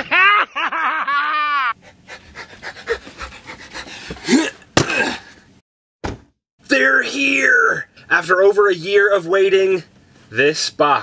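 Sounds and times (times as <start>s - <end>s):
man shouting and laughing: 0.0s - 1.8s
sharp knock: 6.0s - 6.4s.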